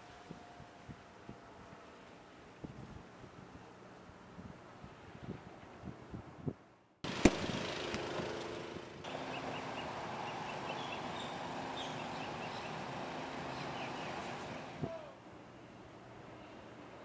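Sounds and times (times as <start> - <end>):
small birds chirping: 9.1 - 14.8.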